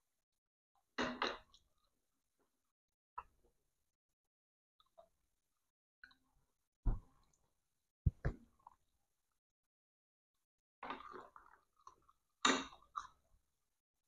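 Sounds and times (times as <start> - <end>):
short thumps: 8.1 - 8.4.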